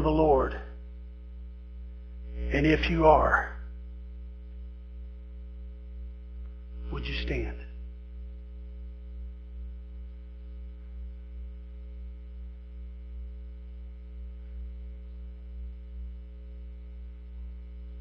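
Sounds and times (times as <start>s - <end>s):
electrical mains hum: 0.0s - 18.0s.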